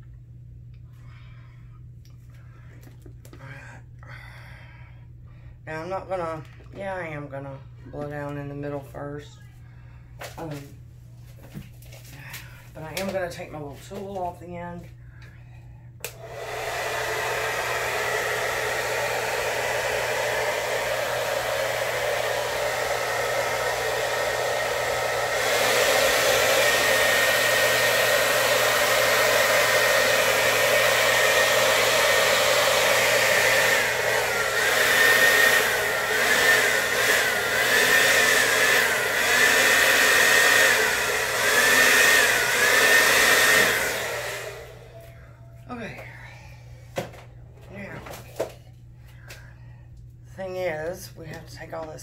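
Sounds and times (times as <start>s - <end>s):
hair dryer blowing: 16.0s - 48.6s.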